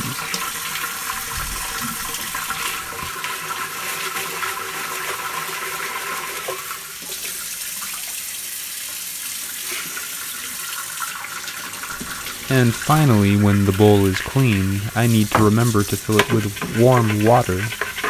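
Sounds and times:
faucet running into metal sink: 0:00.0 - 0:18.0
water splashing over gravel: 0:11.9 - 0:17.9.

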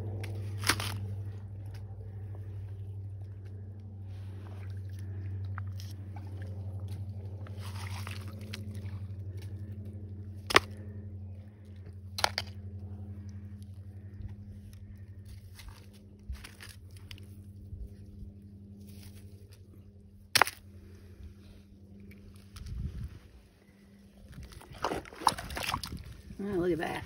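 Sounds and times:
low hum: 0:00.0 - 0:27.0
stones crunching underfoot: 0:00.2 - 0:01.3.

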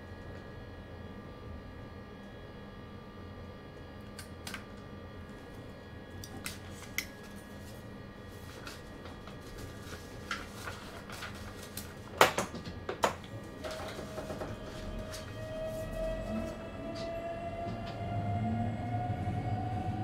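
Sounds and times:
steady hum with whining tones: 0:00.0 - 0:20.0.

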